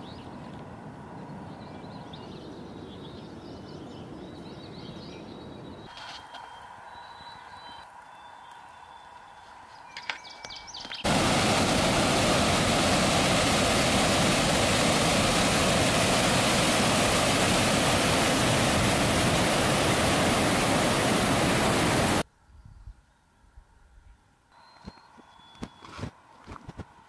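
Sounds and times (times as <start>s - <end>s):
bird chirps: 1.2s - 11.1s, 24.5s - 26.0s
waterfall rushing: 11.0s - 22.2s.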